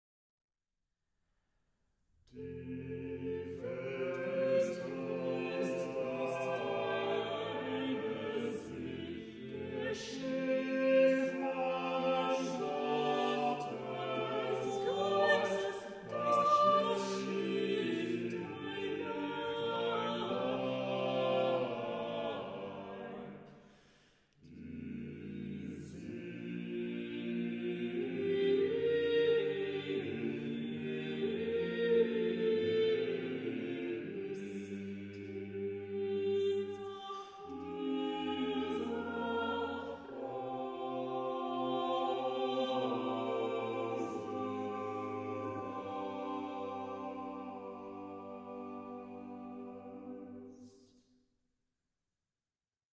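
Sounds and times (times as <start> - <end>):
vocal quartet singing in harmony: 2.4 - 51.0.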